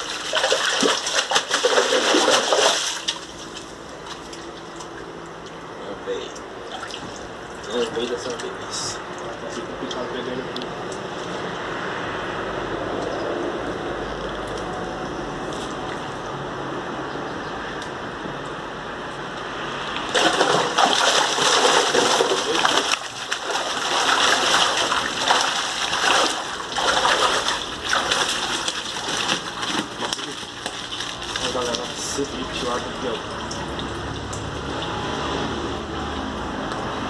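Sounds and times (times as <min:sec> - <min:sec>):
net splashing water: 0:00.0 - 0:04.9, 0:20.1 - 0:36.4
steady watery background: 0:00.0 - 0:37.0.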